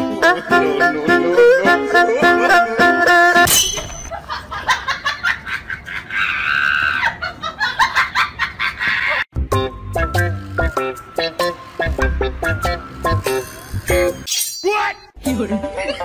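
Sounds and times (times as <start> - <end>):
plucked-string background music: 0.0 - 3.5, 9.4 - 14.3.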